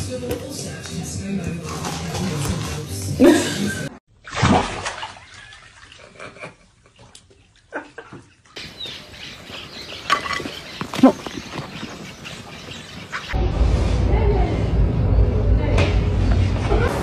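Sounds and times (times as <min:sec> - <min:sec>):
birds chirping and calling: 0:08.3 - 0:13.4.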